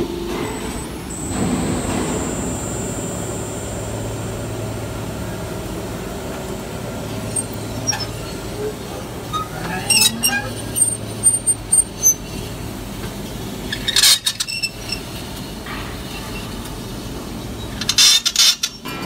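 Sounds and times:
machine humming: 0.0 - 9.3.

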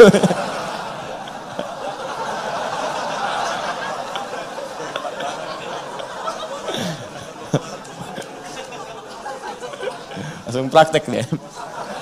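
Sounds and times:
audience laughing: 0.0 - 12.0
murmur of voices: 0.0 - 12.0.

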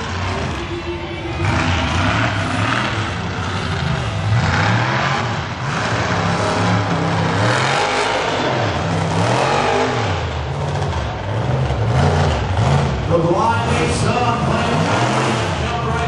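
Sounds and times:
truck engine revving: 0.0 - 16.0.

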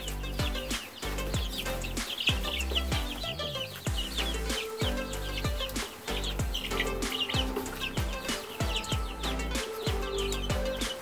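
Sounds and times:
background music with steady beat: 0.0 - 11.0
chicks peeping: 0.0 - 11.0.

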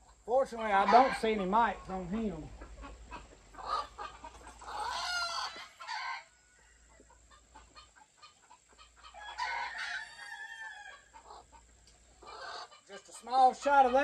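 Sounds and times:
rooster crowing: 4.7 - 7.0, 9.1 - 11.1.

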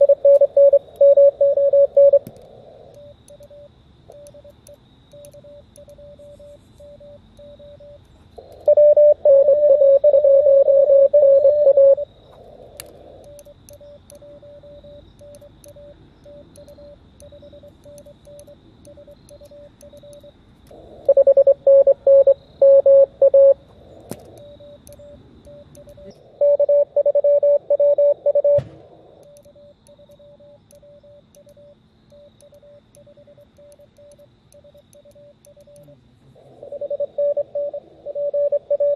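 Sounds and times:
faint morse code tone: 0.0 - 2.3, 2.9 - 12.1, 13.2 - 20.4, 21.0 - 23.6, 24.3 - 28.6, 29.2 - 36.0, 36.6 - 38.9
loud morse code sidetone: 0.0 - 2.3, 8.6 - 12.0, 21.1 - 23.6, 24.4 - 35.9, 36.6 - 38.9.

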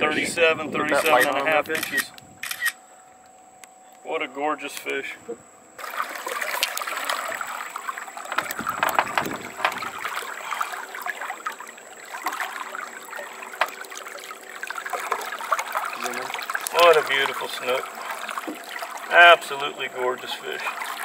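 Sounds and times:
water sloshing and splashing: 5.8 - 21.0.

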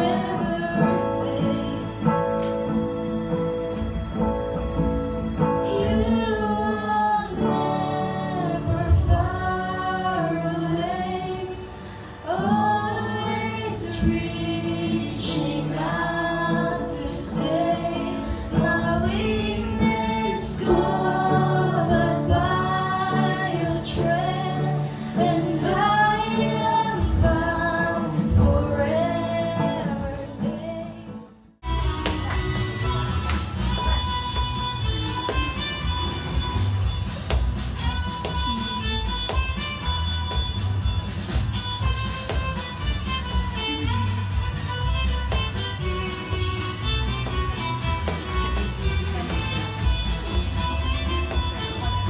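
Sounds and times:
woman singing into microphone: 0.0 - 2.2, 5.6 - 31.3
acoustic guitar: 0.0 - 52.0.

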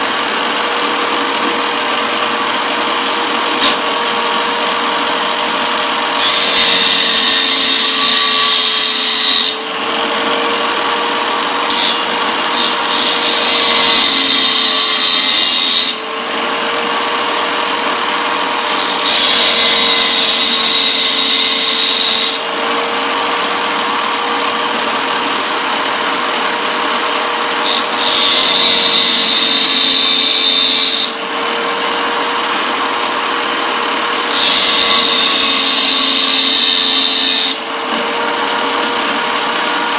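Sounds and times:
tile cutter motor whine: 0.0 - 39.9
saw blade teeth grinding: 3.4 - 4.0, 6.0 - 9.6, 18.5 - 22.4, 27.4 - 31.2, 34.1 - 37.6.

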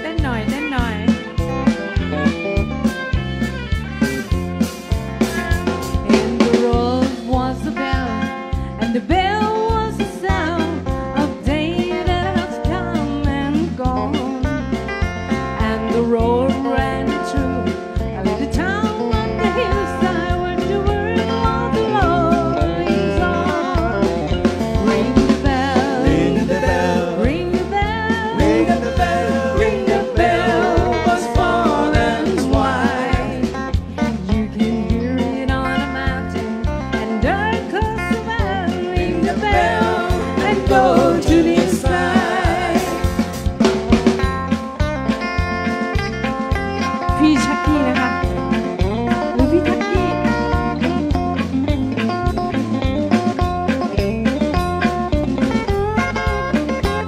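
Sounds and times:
amplified backing instruments: 0.0 - 57.0
country band playing: 0.0 - 57.0
drum kit beat: 0.0 - 57.0
fiddle with bending notes: 0.2 - 8.8, 16.7 - 42.0, 45.2 - 53.8
woman singing with vibrato: 6.1 - 8.2, 15.6 - 23.9, 24.8 - 36.4, 37.0 - 43.1.

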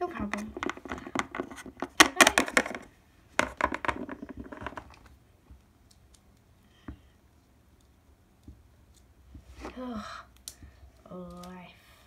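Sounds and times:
plastic toys scraping and knocking: 0.0 - 5.2.

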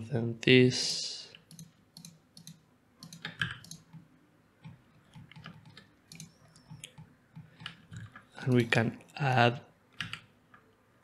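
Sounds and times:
computer mouse and keyboard clicks: 1.3 - 8.7, 9.9 - 10.7.

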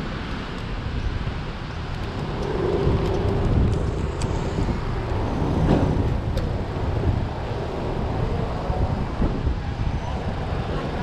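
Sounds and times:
traffic rumble on wet street: 0.0 - 11.0
wind fluttering on microphone: 0.0 - 11.0.

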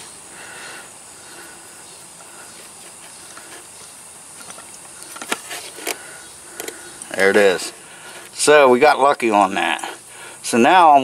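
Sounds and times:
steady hiss: 0.0 - 11.0
faint handling noise: 2.6 - 8.4.

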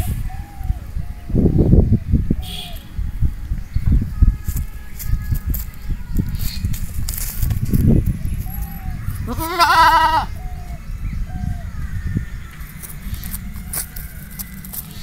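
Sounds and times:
goat bleating: 9.3 - 10.3.

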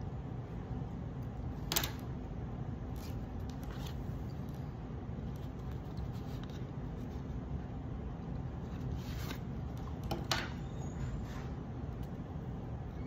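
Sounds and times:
cardboard rubbing and scraping: 8.6 - 9.8.

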